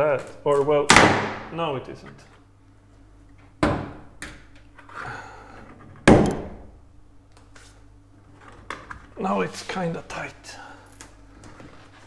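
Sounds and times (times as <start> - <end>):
loud thunks: 0.9 - 1.5, 3.6 - 4.0, 6.0 - 6.7.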